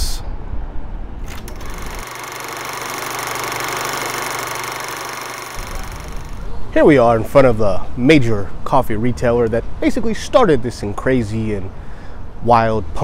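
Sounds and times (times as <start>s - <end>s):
low outdoor background noise: 0.0s - 13.0s
film projector clattering: 1.3s - 6.5s.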